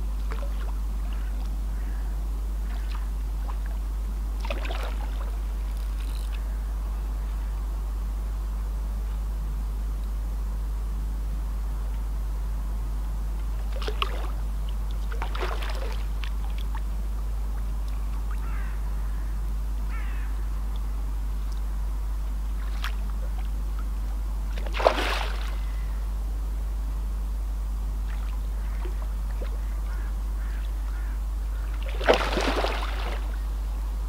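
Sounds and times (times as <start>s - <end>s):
fish splashing at surface: 24.6s - 25.6s, 31.8s - 33.4s.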